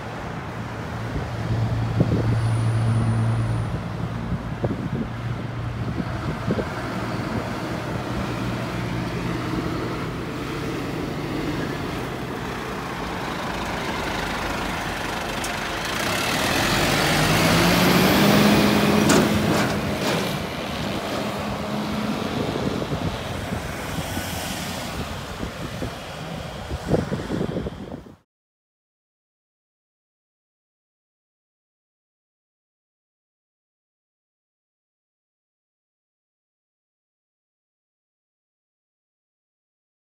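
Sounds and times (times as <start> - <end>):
diesel truck engine: 0.0 - 28.1.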